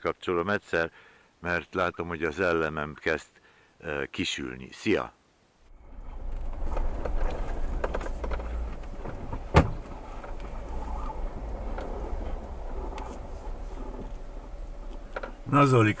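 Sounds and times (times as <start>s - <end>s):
engine and tyres rumbling: 5.7s - 16.0s
knocks and rattles: 5.8s - 15.5s.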